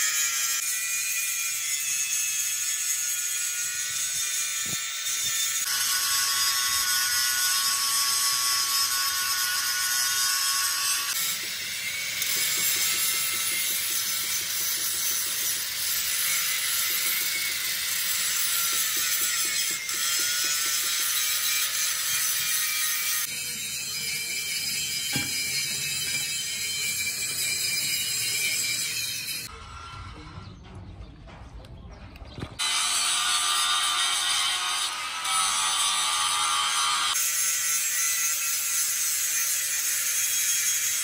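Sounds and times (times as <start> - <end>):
angle grinder grinding metal: 0.0 - 30.2, 32.6 - 41.0.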